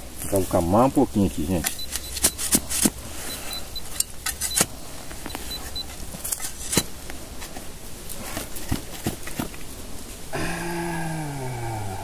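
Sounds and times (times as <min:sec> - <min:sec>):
tool scraping soil: 0:00.2 - 0:09.7
faint high steady tone: 0:01.3 - 0:06.9.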